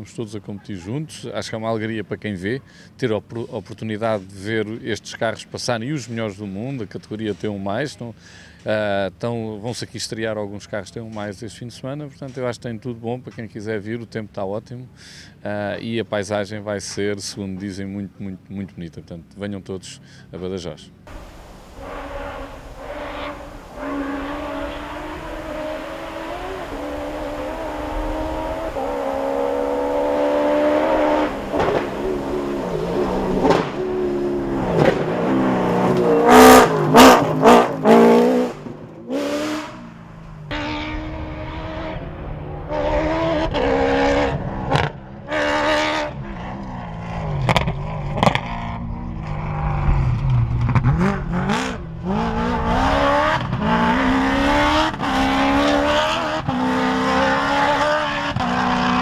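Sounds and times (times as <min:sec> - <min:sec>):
race truck engine revving past: 0:21.1 - 0:59.0.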